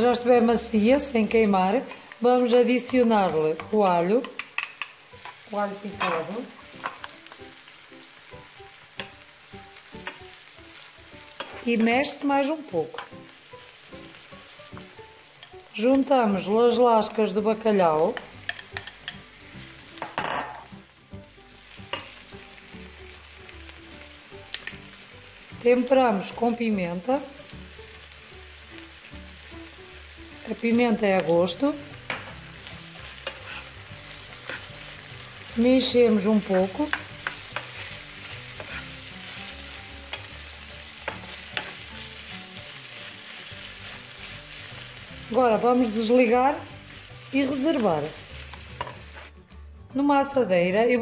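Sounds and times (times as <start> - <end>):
fish sizzling in a frying pan: 0.0 - 49.4
spatula clicking against pan: 2.8 - 5.4, 24.5 - 24.8
spatula clicking on glass and pan: 2.8 - 5.4, 15.4 - 15.6, 18.1 - 19.2, 33.2 - 33.7, 36.9 - 37.9, 41.0 - 41.9.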